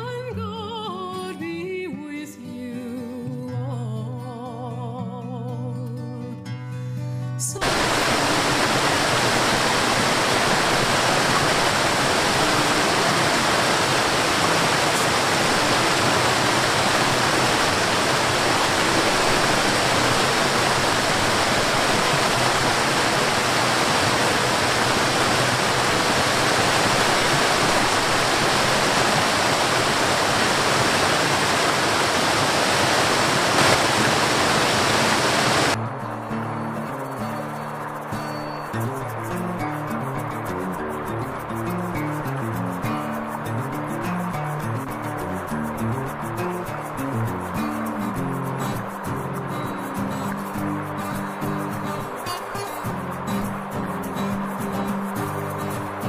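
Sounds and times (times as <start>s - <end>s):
waterfall rushing: 7.6s - 35.8s, 41.0s - 56.0s.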